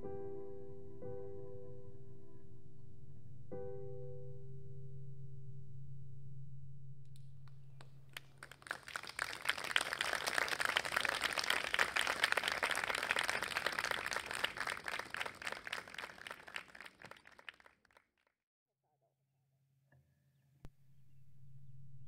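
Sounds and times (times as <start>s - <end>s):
small audience applauding: 7.8s - 18.1s.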